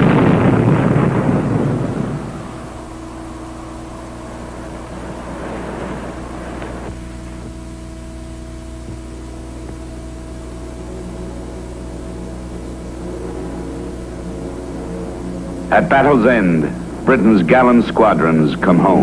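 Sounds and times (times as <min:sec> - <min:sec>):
aircraft engines droning: 0:00.0 - 0:19.0
rushing noise: 0:00.0 - 0:19.0.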